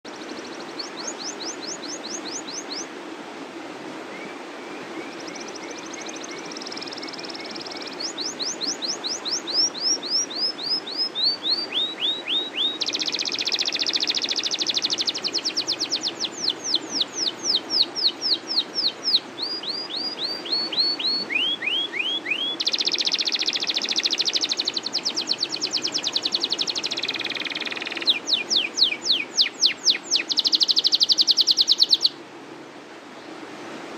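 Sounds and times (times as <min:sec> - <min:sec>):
canary singing: 0:06.6 - 0:32.2.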